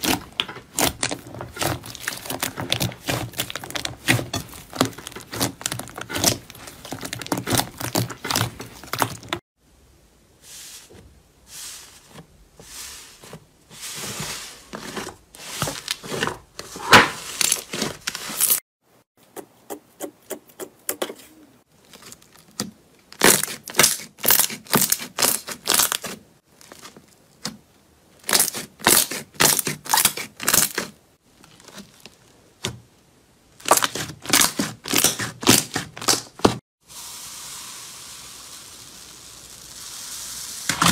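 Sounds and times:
slime crackling and popping: 0:00.0 - 0:09.4, 0:33.6 - 0:36.3.

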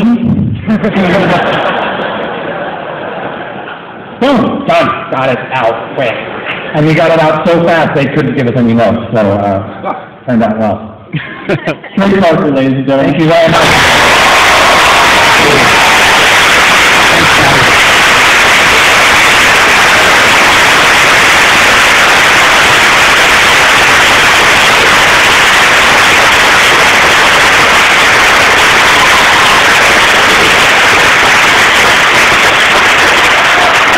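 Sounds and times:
audience applauding: 0:00.9 - 0:03.5, 0:13.2 - 0:33.9.

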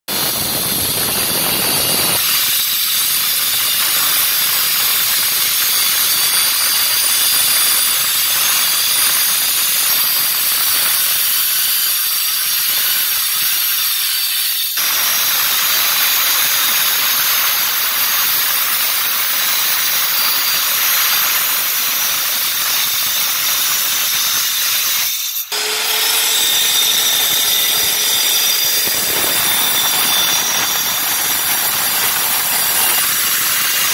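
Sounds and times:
tile cutter grinding whine: 0:14.8 - 0:33.9.

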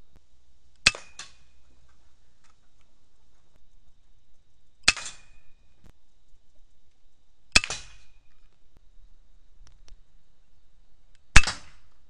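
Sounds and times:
air rifle shots: 0:04.8 - 0:05.4, 0:07.6 - 0:08.2, 0:11.4 - 0:11.9.

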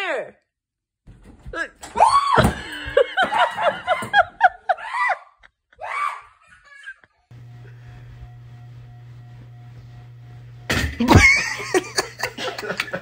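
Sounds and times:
person shrieking and laughing: 0:04.4 - 0:07.3.

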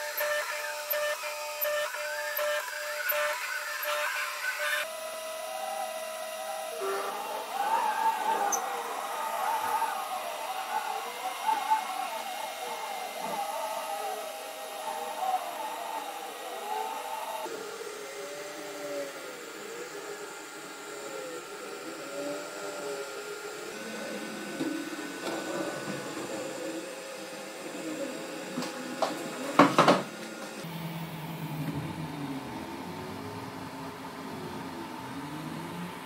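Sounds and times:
stepper motors whining: 0:00.0 - 0:36.0.

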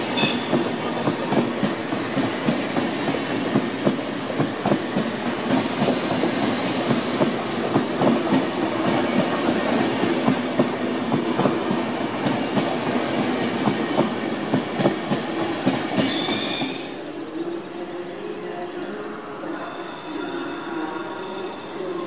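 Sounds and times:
train hum: 0:00.0 - 0:22.0
wheel squeal: 0:15.8 - 0:17.0.

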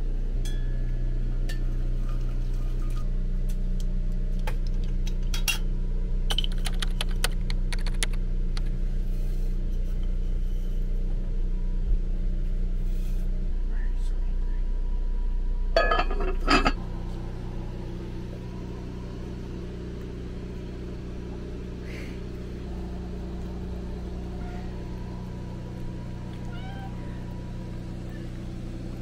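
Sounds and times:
steady low hum: 0:00.0 - 0:29.0
cat meowing: 0:26.3 - 0:27.4.

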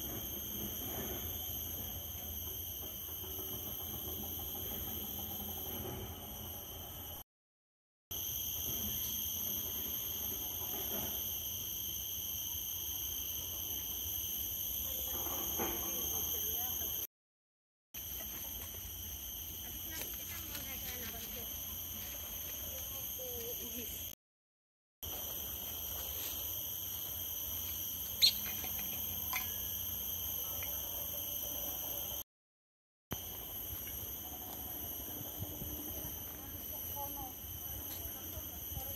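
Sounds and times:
insects droning: 0:00.0 - 0:07.2, 0:08.1 - 0:17.1, 0:18.0 - 0:24.2, 0:25.0 - 0:32.2, 0:33.1 - 0:38.9
short sharp insect chirp: 0:08.1 - 0:17.1, 0:25.1 - 0:32.2.

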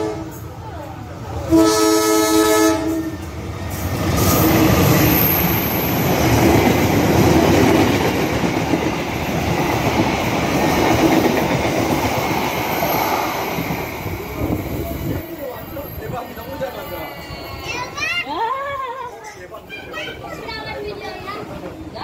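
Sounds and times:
locomotive horn blast: 0:00.0 - 0:00.4, 0:01.5 - 0:03.2
train wheels rolling on rails: 0:02.9 - 0:18.3.

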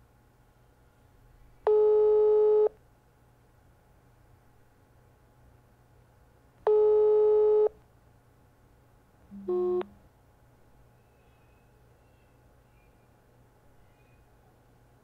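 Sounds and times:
phone ringback tone: 0:01.7 - 0:02.7, 0:06.7 - 0:07.7, 0:09.4 - 0:09.9.

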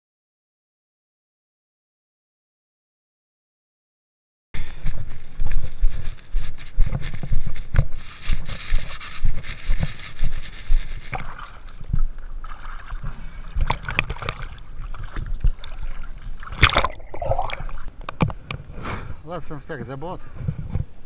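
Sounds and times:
water slapping and sloshing: 0:09.5 - 0:17.9
loud splash: 0:13.6 - 0:17.9.

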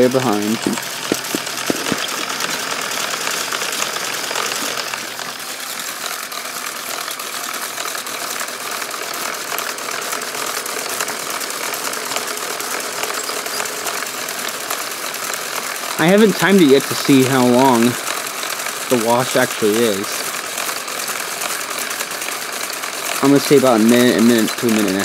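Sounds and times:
small electric motors whirring: 0:00.0 - 0:25.0
brush strips flapping: 0:00.5 - 0:05.0.

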